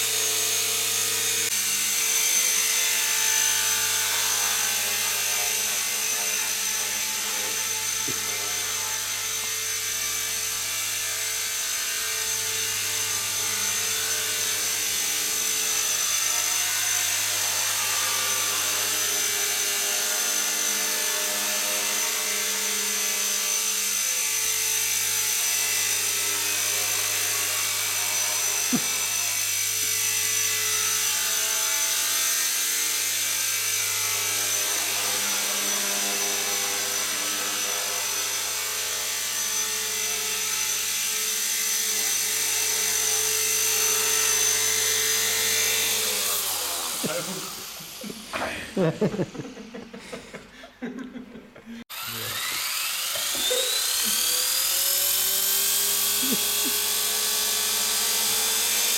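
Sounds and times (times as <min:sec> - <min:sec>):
rotor buzz: 0:00.0 - 0:38.4, 0:51.7 - 0:58.9
rc helicopter motor whine: 0:00.0 - 0:49.9, 0:51.9 - 0:58.9.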